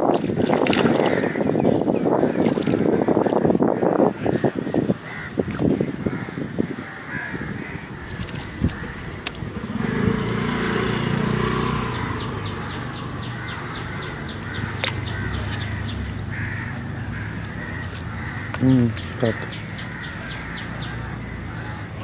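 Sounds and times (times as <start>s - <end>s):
crows cawing: 0.9s - 1.6s, 2.2s - 9.9s, 12.0s - 22.0s.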